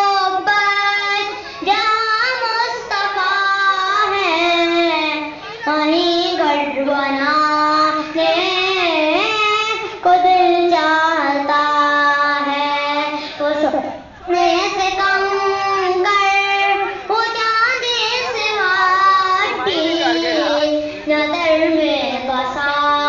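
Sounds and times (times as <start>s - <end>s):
boy singing unaccompanied: 0.0s - 23.0s.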